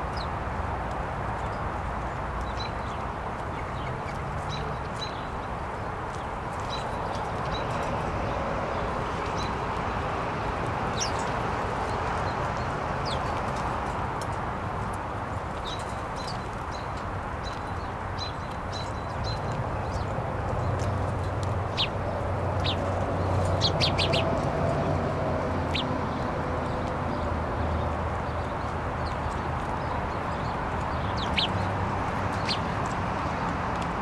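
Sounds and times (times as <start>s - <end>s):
songbirds chirping: 0.0s - 34.0s
rushing background noise: 19.0s - 34.0s.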